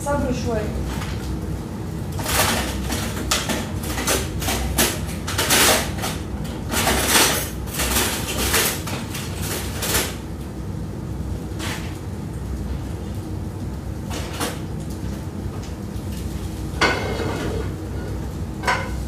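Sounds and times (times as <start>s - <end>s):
utensil scraping in frying pan: 16.2s - 19.0s.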